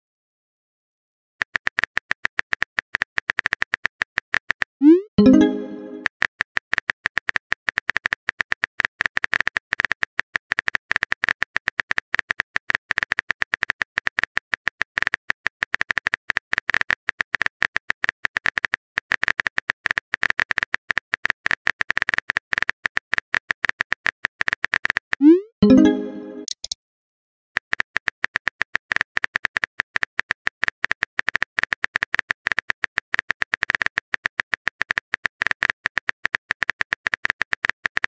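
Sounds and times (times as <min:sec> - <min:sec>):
rising message pop: 0:04.8 - 0:06.1, 0:25.2 - 0:26.7
phone keyboard clicks: 0:26.4 - 0:26.8.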